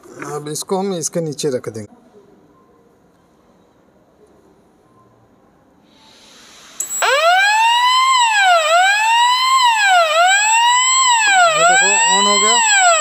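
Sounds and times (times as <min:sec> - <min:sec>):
fire alarm wailing: 0:06.8 - 0:13.0
thin high steady tone: 0:06.8 - 0:13.0.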